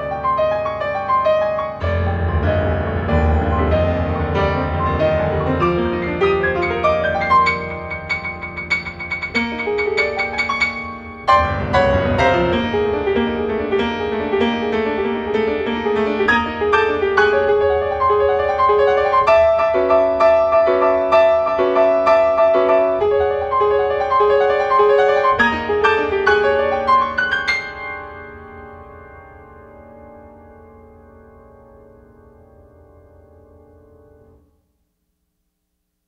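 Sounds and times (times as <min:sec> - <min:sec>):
solo piano: 0:00.0 - 0:34.9.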